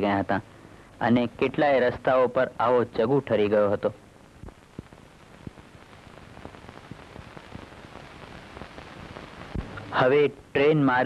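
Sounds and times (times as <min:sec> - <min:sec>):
steady hiss: 0:00.0 - 0:11.0
faint crackles and ticks: 0:03.3 - 0:10.0.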